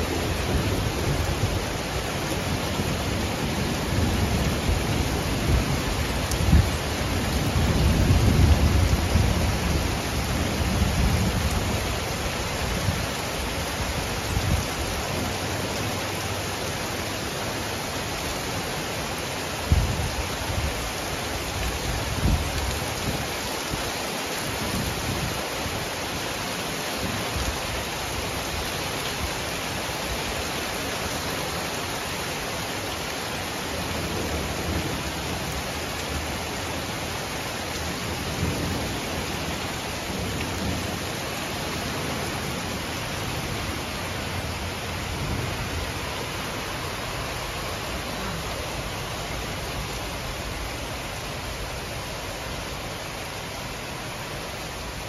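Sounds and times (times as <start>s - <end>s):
heavy rain falling: 0.0s - 55.0s
thunder rumbling: 2.7s - 13.0s.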